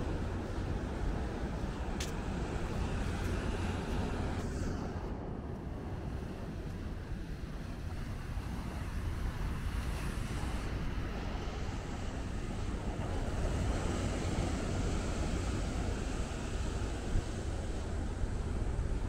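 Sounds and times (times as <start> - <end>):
wind on microphone: 0.0 - 19.0.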